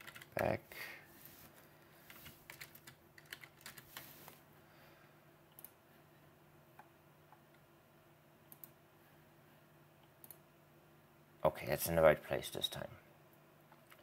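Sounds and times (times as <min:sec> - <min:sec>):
typing on computer keyboard: 0:00.0 - 0:00.3, 0:02.1 - 0:03.8.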